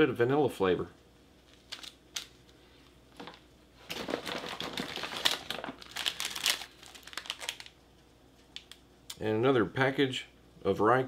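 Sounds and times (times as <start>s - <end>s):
plastic packaging crinkling: 1.4s - 2.6s, 3.2s - 7.8s.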